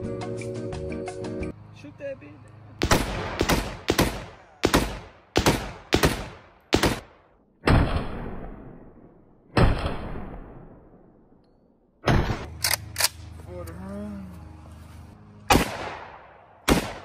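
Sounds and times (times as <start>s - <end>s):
echoing gunshots: 2.8s - 11.3s, 12.0s - 12.5s, 15.5s - 17.0s.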